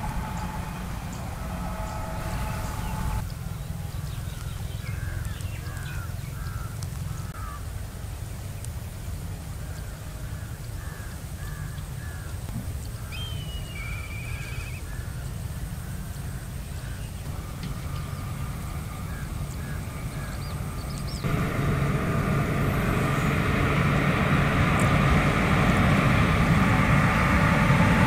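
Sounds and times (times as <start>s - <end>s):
rising buzzing bird call: 0.0s - 3.2s, 13.0s - 15.2s, 16.8s - 28.0s
steady low rumble: 0.0s - 9.9s, 13.8s - 28.0s
crows cawing: 5.0s - 7.7s.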